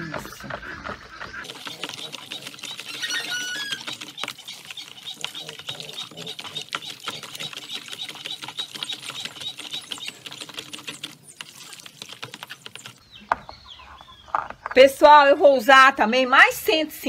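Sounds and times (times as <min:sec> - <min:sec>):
spoon stirring in plastic basin: 0:01.4 - 0:12.9.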